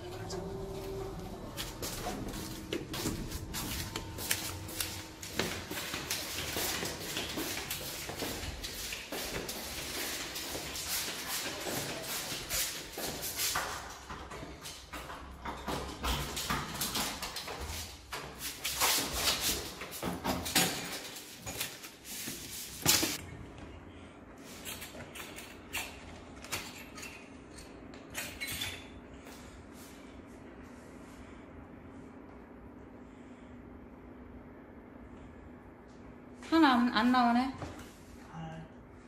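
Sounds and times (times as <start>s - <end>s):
steady low hum: 0.0s - 19.8s, 28.9s - 39.0s
footsteps on tiles: 1.2s - 23.2s.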